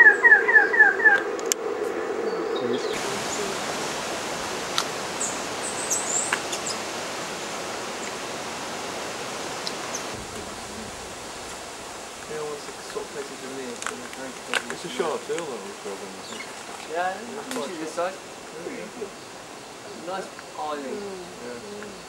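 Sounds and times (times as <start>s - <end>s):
steady hum: 1.2s - 16.7s
steady hiss: 2.7s - 22.0s
high thin bird chirps: 5.2s - 6.8s.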